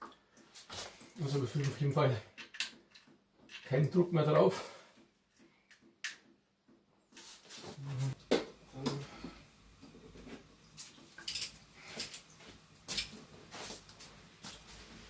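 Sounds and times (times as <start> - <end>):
metal parts clicking and clinking: 11.2 - 12.2.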